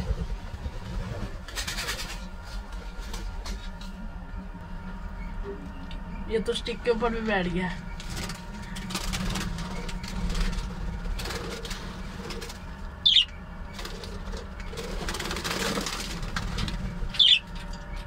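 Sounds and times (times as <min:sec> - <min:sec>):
wings fluttering: 0:00.0 - 0:04.7, 0:07.7 - 0:18.0
sharp loud bird calls: 0:12.5 - 0:15.9, 0:16.8 - 0:17.6
budgerigars chirping: 0:13.0 - 0:13.4, 0:17.1 - 0:17.6.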